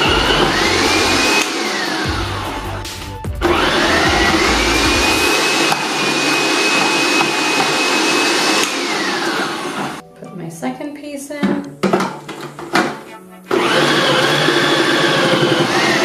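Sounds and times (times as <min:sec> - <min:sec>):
food processor motor whining: 0:00.0 - 0:02.5, 0:03.4 - 0:10.0, 0:13.5 - 0:16.0.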